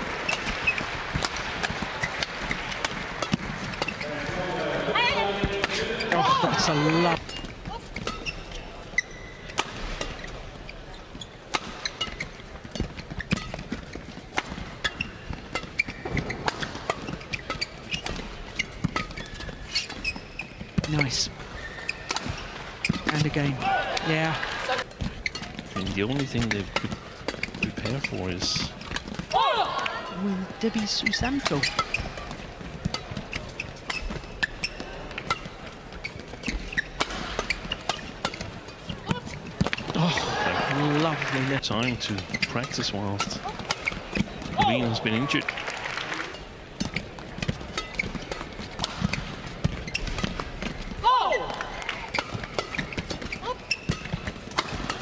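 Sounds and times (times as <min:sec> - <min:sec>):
racket hitting shuttlecock: 0:00.2 - 0:04.0, 0:09.0 - 0:10.4, 0:11.5 - 0:20.9, 0:21.9 - 0:23.8, 0:31.3 - 0:40.0, 0:46.8 - 0:55.0
shoe squeaks on court: 0:00.3 - 0:00.9, 0:07.2 - 0:23.5, 0:25.0 - 0:29.0, 0:30.8 - 0:40.0, 0:41.7 - 0:45.2, 0:46.8 - 0:50.8, 0:51.9 - 0:55.0
crowd murmur: 0:38.6 - 0:41.4.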